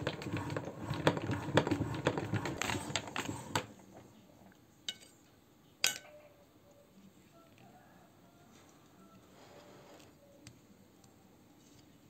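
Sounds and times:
hand-cranked meat grinder grinding: 0.0 - 3.6.

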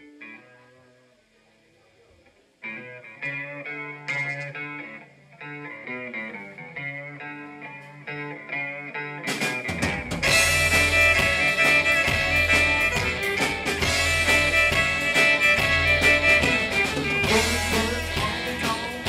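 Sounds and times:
guitar picking single notes: 2.6 - 19.0
live rock band playing loudly: 2.8 - 19.0.

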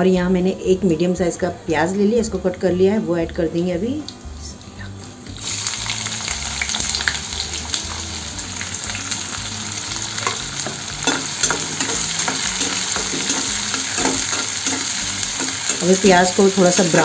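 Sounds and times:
onions sizzling in hot oil: 4.8 - 17.0
spatula scraping and stirring: 10.2 - 17.0.

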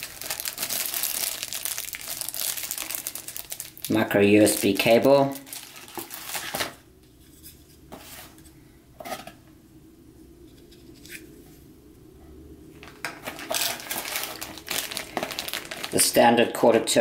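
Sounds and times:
plastic and cardboard rustling: 0.0 - 6.8, 12.8 - 16.4.

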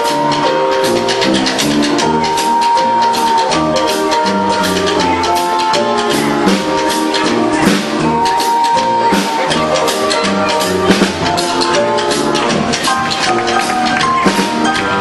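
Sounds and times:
instrumental backing music: 0.0 - 15.0
steady drum beat: 0.0 - 15.0.

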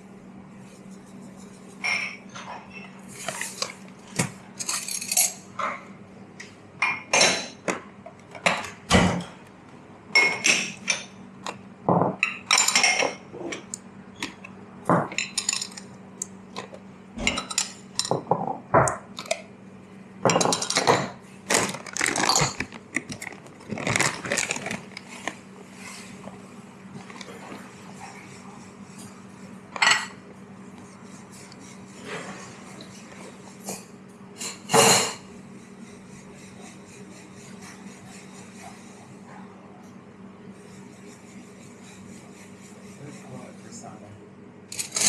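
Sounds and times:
steady low hum: 0.0 - 45.0
cups and spoons clinking: 14.9 - 15.9, 20.2 - 21.2.

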